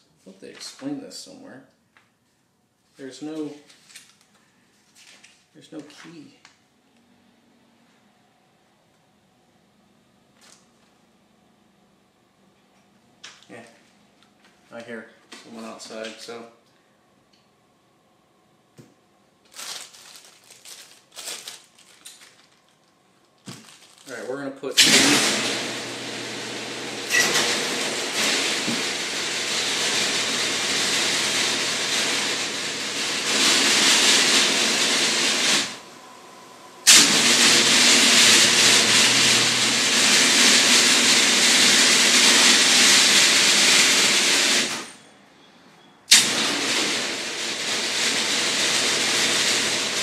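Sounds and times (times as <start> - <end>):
sander motor humming: 24.8 - 36.4, 37.0 - 44.7.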